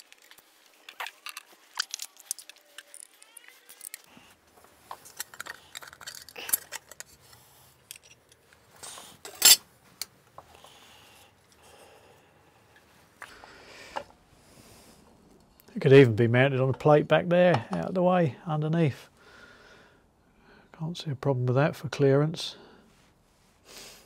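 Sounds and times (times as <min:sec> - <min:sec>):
small metal parts clinking: 0:00.0 - 0:04.1, 0:04.8 - 0:09.6.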